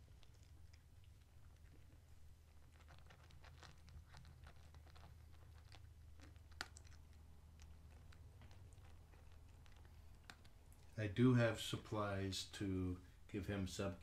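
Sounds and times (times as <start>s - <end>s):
small clicks and rustles: 0.0s - 11.0s
low room hum: 0.0s - 14.0s.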